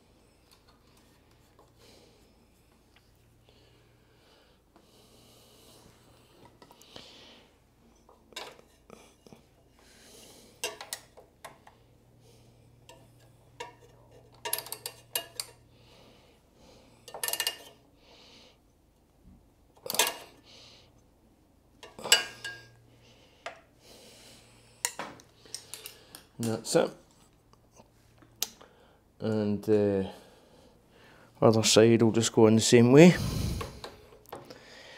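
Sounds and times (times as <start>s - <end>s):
metal tools clinking: 13.6s - 15.6s, 17.1s - 17.8s, 21.8s - 22.8s.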